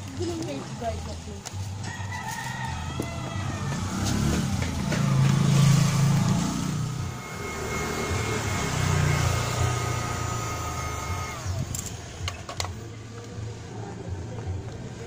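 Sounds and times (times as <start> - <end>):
street traffic rumble: 0.0 - 15.0
heat gun whine: 5.0 - 12.0.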